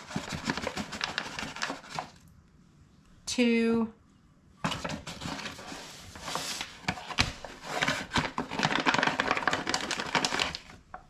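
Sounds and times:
paper bag crinkling: 0.0s - 2.2s, 4.7s - 10.8s.

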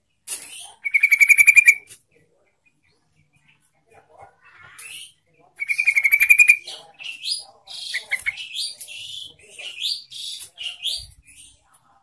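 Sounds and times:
bulbul singing: 0.0s - 1.9s, 4.8s - 11.6s.

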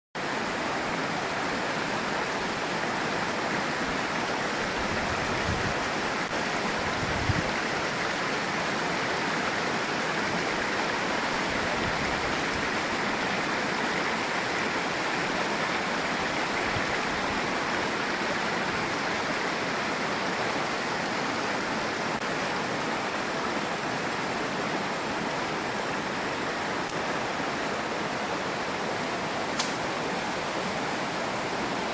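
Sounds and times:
river rushing over rocks: 0.2s - 31.9s.

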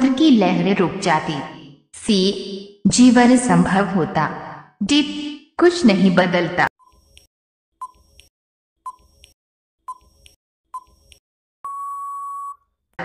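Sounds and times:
beeping timer ticks: 6.8s - 12.6s
long steady beep: 11.6s - 12.6s.

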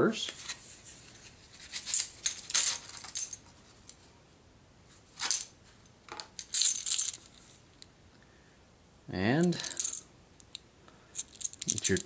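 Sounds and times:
coins clinking and jingling: 1.9s - 3.4s, 6.4s - 7.2s, 9.5s - 10.1s, 11.2s - 12.0s.

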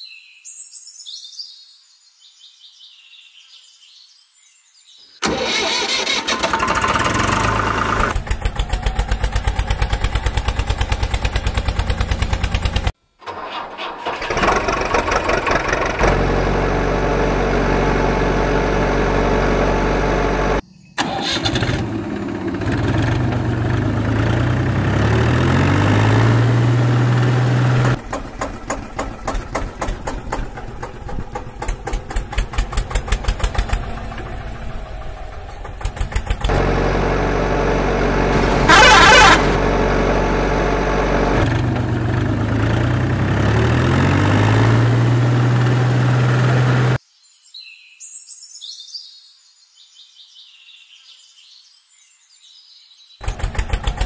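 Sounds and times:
engine running and revving: 5.2s - 13.0s, 14.2s - 47.0s, 53.2s - 54.0s.

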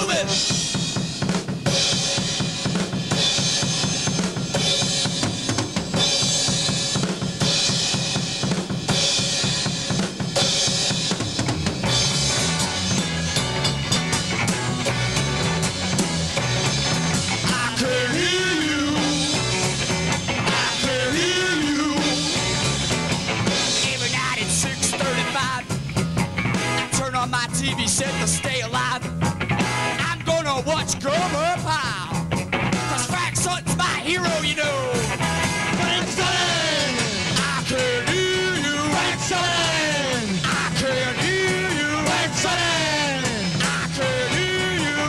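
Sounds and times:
bass line: 0.0s - 45.0s
drum kit beat: 0.0s - 45.0s.

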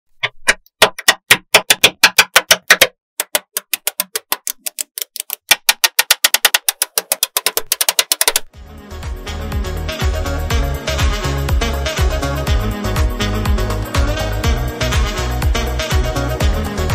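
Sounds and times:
magnetic balls clicking: 0.2s - 8.5s.

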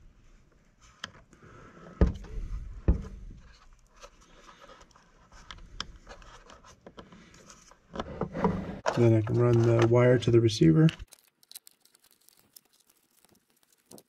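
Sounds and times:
wires rustling: 8.8s - 14.0s.

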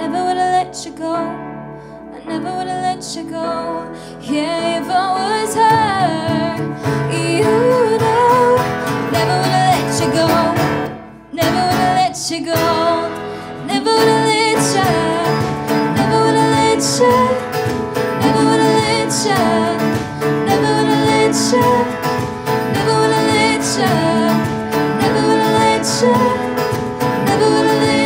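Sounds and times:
acoustic guitar: 0.0s - 28.0s
keyboard: 0.0s - 28.0s
woman singing: 0.0s - 28.0s
drums: 6.3s - 12.0s, 14.0s - 28.0s.

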